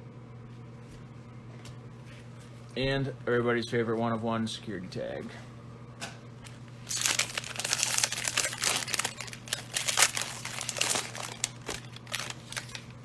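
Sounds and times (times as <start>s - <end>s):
plastic wrapper crinkling and tearing: 6.8s - 13.0s.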